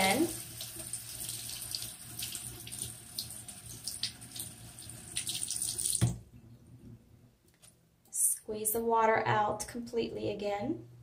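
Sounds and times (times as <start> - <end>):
faucet water splashing: 0.0 - 6.2.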